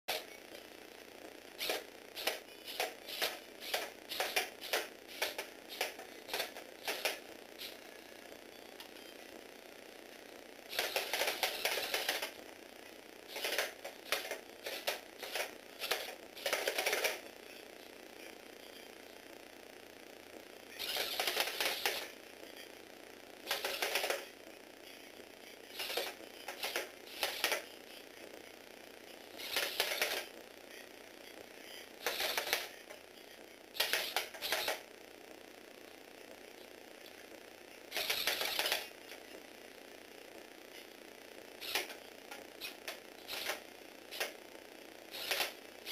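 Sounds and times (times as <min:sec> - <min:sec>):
plastic robot feet clacking: 0:01.6 - 0:07.7
toy robot clattering as it walks: 0:01.6 - 0:07.8, 0:10.7 - 0:12.4, 0:13.3 - 0:17.3, 0:20.8 - 0:22.2, 0:23.4 - 0:24.3, 0:25.7 - 0:27.7, 0:29.4 - 0:30.3, 0:32.0 - 0:33.0, 0:33.8 - 0:34.9, 0:37.9 - 0:39.3, 0:41.6 - 0:42.0, 0:42.6 - 0:44.4, 0:45.1 - 0:45.9.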